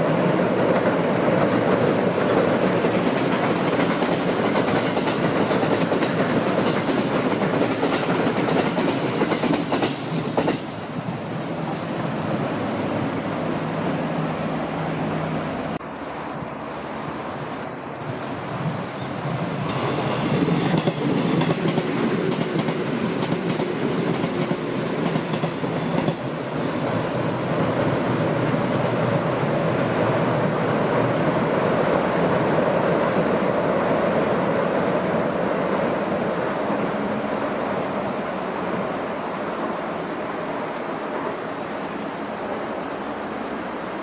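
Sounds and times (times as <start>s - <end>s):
train crossing steel bridge: 0.0s - 44.0s
rhythmic train wheel clicks: 2.8s - 10.6s, 20.6s - 26.4s.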